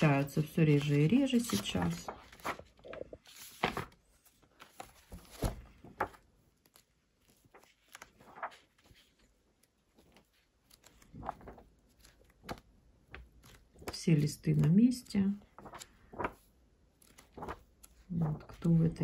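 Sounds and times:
book pages turning: 0.0 - 19.0.

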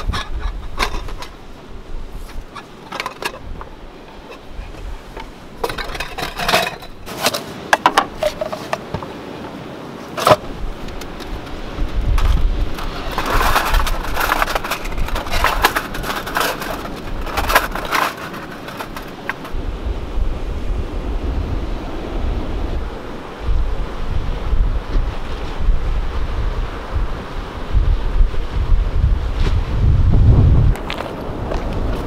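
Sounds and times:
cookware clicks and knocks on wood: 0.0 - 1.4, 2.5 - 4.5, 5.2 - 9.1
aluminium windscreen rattling: 0.0 - 19.7
wind rumble on microphone: 0.0 - 32.0.

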